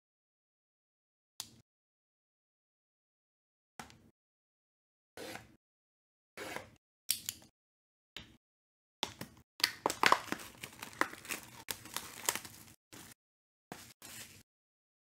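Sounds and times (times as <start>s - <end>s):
plastic shrink wrap crinkling: 9.6s - 13.2s.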